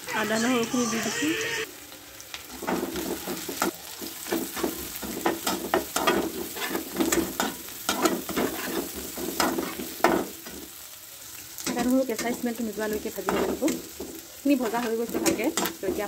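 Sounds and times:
onions sizzling in hot oil: 0:00.0 - 0:16.0
metal spatula scraping pan: 0:02.6 - 0:09.9.

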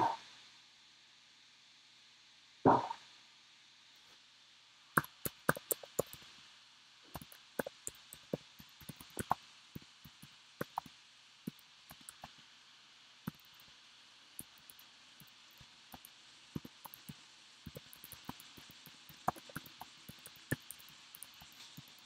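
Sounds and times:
keyboard typing: 0:05.0 - 0:06.2, 0:07.2 - 0:09.4, 0:10.2 - 0:10.9, 0:11.9 - 0:12.3, 0:16.0 - 0:22.0.

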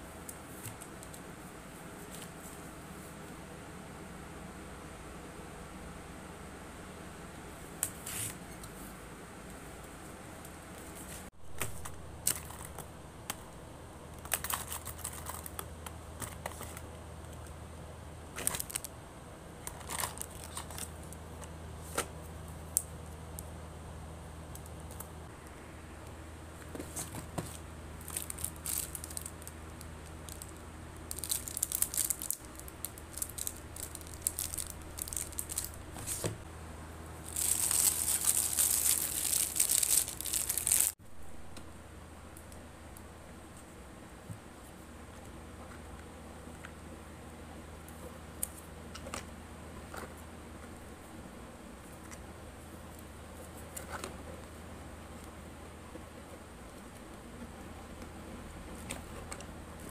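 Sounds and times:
low steady hum: 0:00.0 - 0:59.9
packaging crinkling and tearing: 0:18.4 - 0:18.9, 0:19.7 - 0:20.9, 0:28.0 - 0:36.2, 0:37.2 - 0:41.0.

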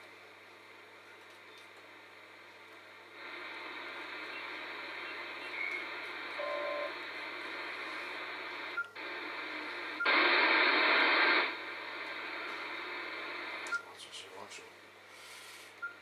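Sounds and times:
radio receiver hiss: 0:01.2 - 0:16.0
short radio tones: 0:03.2 - 0:13.9.

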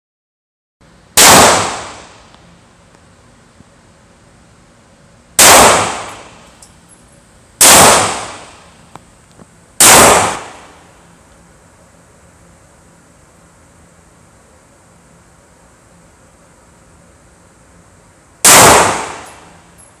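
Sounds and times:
pistol shots ringing indoors: 0:01.2 - 0:02.2, 0:05.4 - 0:06.4, 0:07.6 - 0:08.6, 0:09.8 - 0:10.8, 0:18.4 - 0:19.6.

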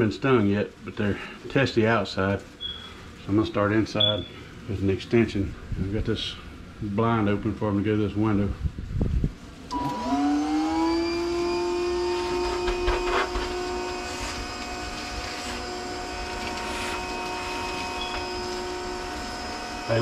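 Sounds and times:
vacuum motor whine: 0:09.6 - 0:20.0.

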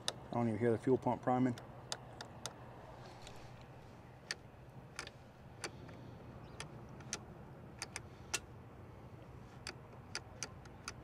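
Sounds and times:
motorcycle switch clicks: 0:07.8 - 0:08.5, 0:09.6 - 0:11.0.

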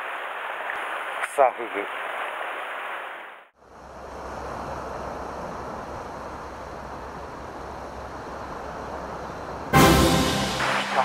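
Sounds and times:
surf washing over rocks: 0:00.0 - 0:03.4.

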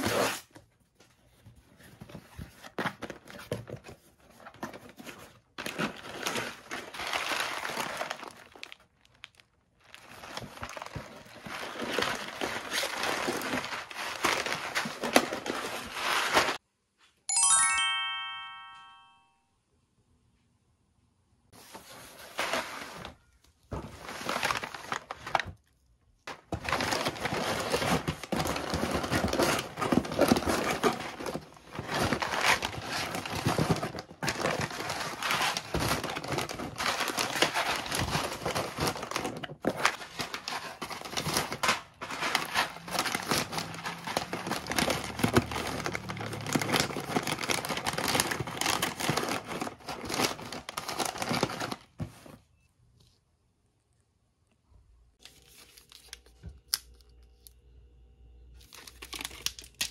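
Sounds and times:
plastic pouches crinkling: 0:04.2 - 0:16.6, 0:23.8 - 0:25.7, 0:26.3 - 0:52.1, 0:58.6 - 0:59.9.

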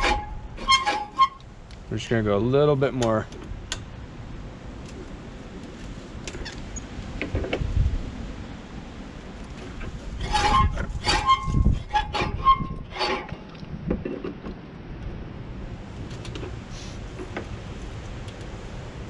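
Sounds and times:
mower blades scraping and clicking: 0:00.0 - 0:01.5, 0:09.4 - 0:14.6, 0:16.0 - 0:18.6.

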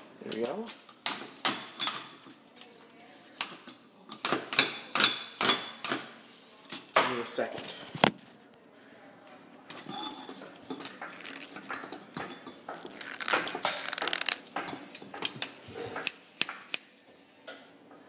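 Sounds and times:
fishing rod clicking and rattling: 0:12.9 - 0:14.4.

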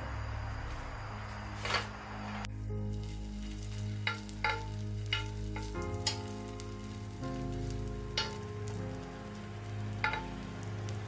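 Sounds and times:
batter sizzling in hot oil: 0:02.6 - 0:11.0.

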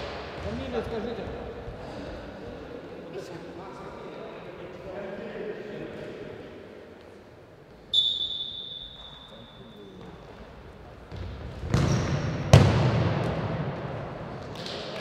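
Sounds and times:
ball struck echoing in hall: 0:00.0 - 0:02.0, 0:05.9 - 0:15.0
whistle blast: 0:07.9 - 0:09.9.

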